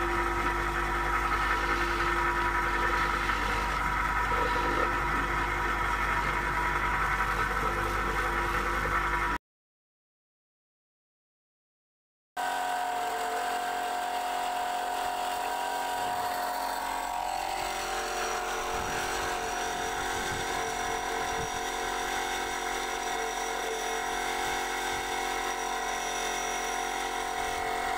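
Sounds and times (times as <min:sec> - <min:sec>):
cutter scraping mortar off tile: 0:00.0 - 0:06.5, 0:13.0 - 0:27.9
electric motor whining: 0:00.0 - 0:09.4, 0:12.4 - 0:27.9.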